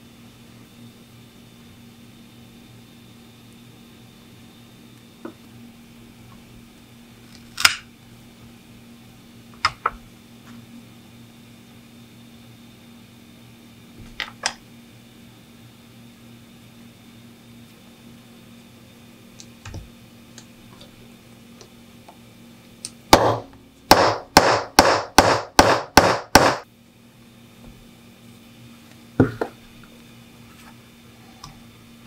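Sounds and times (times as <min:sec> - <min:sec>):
hammer striking metal tool: 0:23.2 - 0:26.6.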